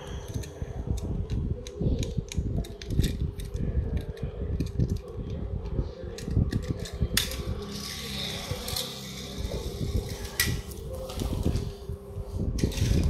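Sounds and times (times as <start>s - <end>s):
faint steady hum: 0.0s - 13.0s
fingers handling toy car: 6.1s - 11.6s.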